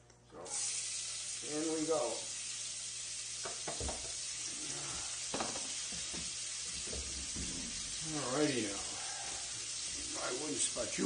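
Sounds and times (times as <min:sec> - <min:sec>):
onions sizzling in frying pan: 0:00.5 - 0:11.0.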